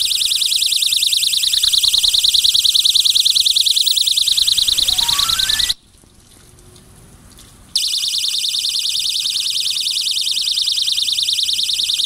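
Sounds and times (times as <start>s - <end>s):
high-pitched warbling alarm tone: 3.8s - 5.8s.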